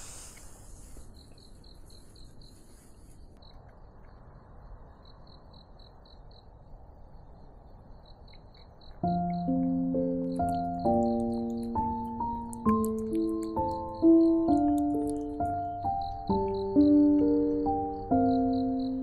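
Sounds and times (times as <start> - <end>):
cricket chirping: 0.0 - 19.0
piano music: 9.0 - 19.0.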